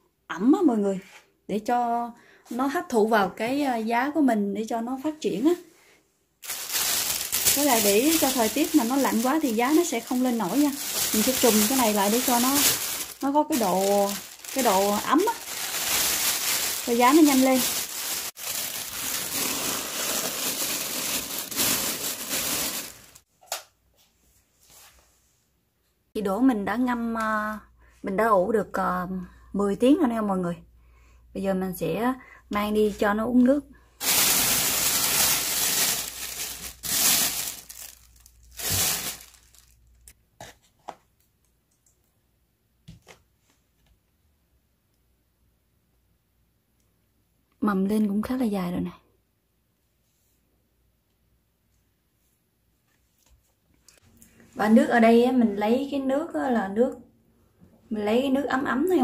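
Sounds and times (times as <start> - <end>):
plastic bag crinkling: 6.4 - 23.2, 34.0 - 40.2.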